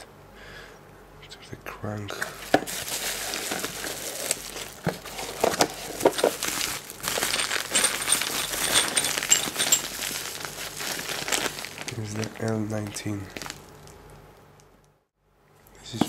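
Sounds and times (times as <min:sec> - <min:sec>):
bubble wrap and plastic bag crinkling: 0:02.2 - 0:14.2.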